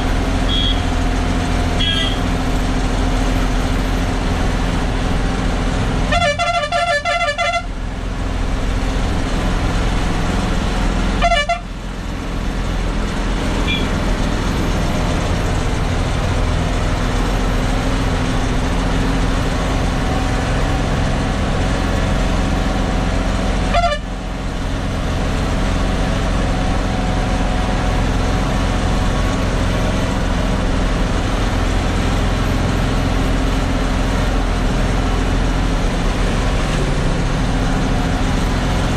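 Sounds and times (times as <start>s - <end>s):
truck diesel engine labouring: 0.0s - 38.9s
truck horn: 0.2s - 2.4s, 6.0s - 7.8s, 11.0s - 11.9s, 13.6s - 14.0s, 23.6s - 24.4s.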